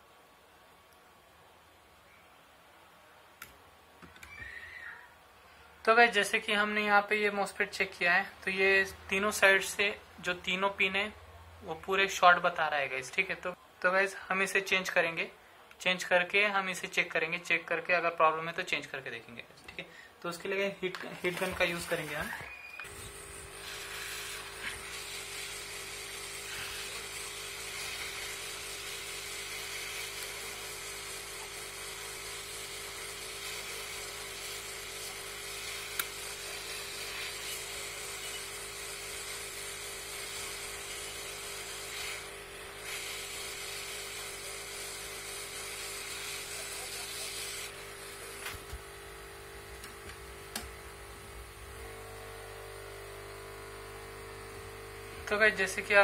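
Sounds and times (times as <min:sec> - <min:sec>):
hot-air gun hissing: 0:21.1 - 0:48.8.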